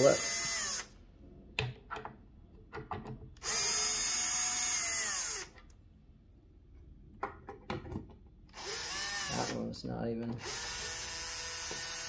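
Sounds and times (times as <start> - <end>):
cordless drill whining: 0.0 - 0.9, 3.4 - 5.6, 8.5 - 9.6, 10.4 - 12.0
drill clicks: 10.3 - 12.0.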